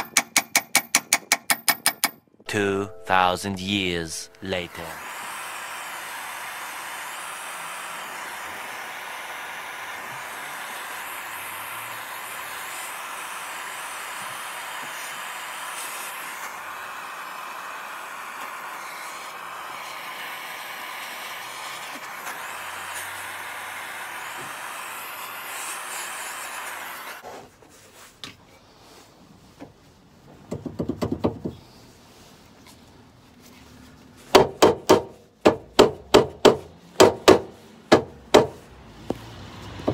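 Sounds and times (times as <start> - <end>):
blowtorch hissing flame: 4.7 - 27.2.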